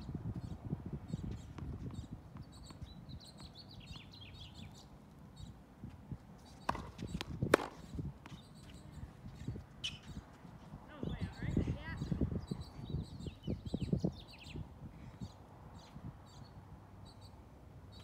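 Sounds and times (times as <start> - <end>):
small birds chirping: 0.3 - 18.0
tennis ball bouncing: 6.6 - 8.8
racket hitting ball: 6.7 - 7.9.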